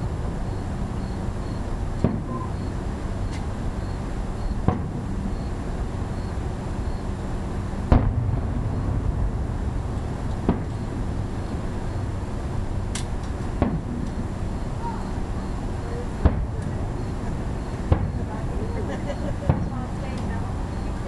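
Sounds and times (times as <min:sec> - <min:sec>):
low background rumble: 0:00.0 - 0:21.0
firework shells booming: 0:01.9 - 0:02.8, 0:04.6 - 0:05.6, 0:07.7 - 0:18.4, 0:19.2 - 0:20.3.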